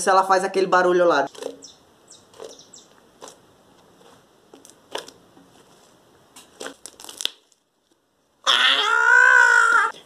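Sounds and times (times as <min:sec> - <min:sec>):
loud scream: 0:08.4 - 0:10.0.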